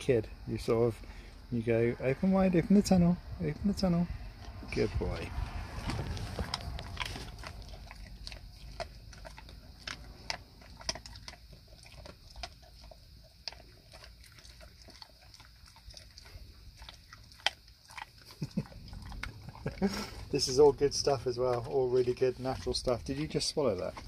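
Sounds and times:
dog chewing treat: 5.7 - 24.0.

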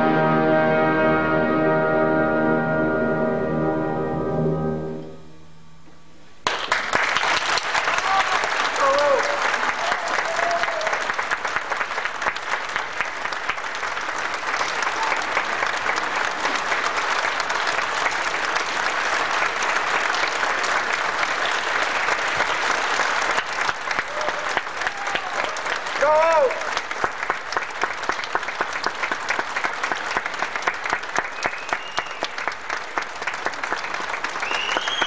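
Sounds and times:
audience applauding: 6.4 - 35.0
person calling out: 26.0 - 26.6.

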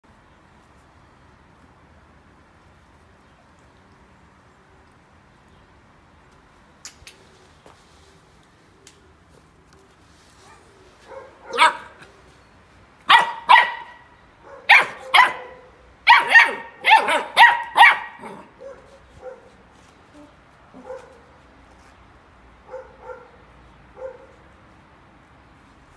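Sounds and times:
puppy barking: 10.4 - 12.1, 13.1 - 19.6, 20.7 - 21.3, 22.6 - 23.4, 24.0 - 24.4.

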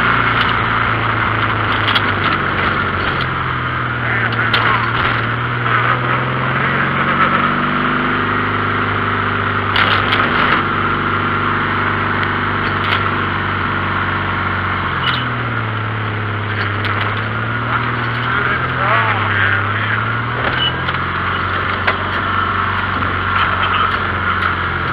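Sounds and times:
knocks and rattles: 0.0 - 5.6, 9.7 - 10.8, 12.2 - 13.3, 16.5 - 18.8
dune buggy engine running: 0.0 - 24.9
wind and road noise: 0.0 - 24.9.

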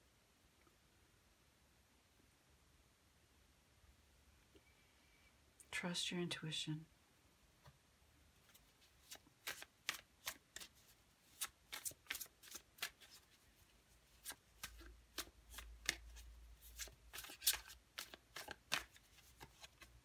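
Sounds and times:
cards being shuffled: 8.4 - 20.0.

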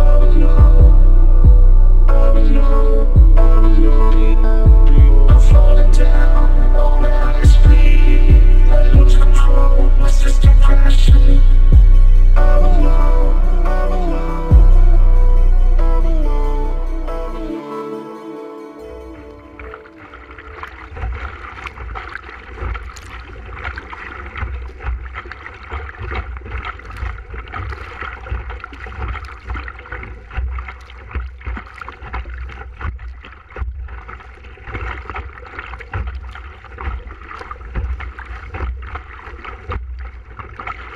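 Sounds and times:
wind rumble on microphone: 0.0 - 13.9
water splashing against canoe: 19.0 - 40.9.

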